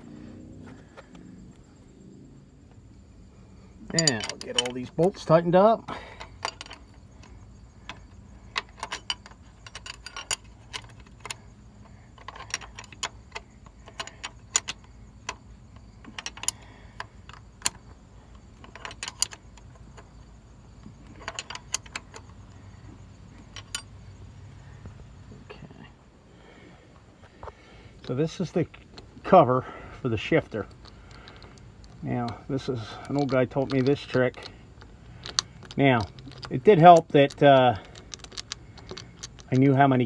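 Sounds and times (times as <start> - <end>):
wrench metallic clicks: 3.9 - 5.4, 6.2 - 20.1, 21.0 - 22.4, 30.2 - 40.0.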